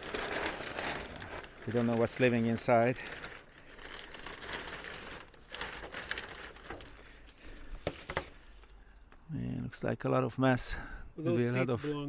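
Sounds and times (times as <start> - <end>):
plastic sheeting rustling: 0.0 - 8.8.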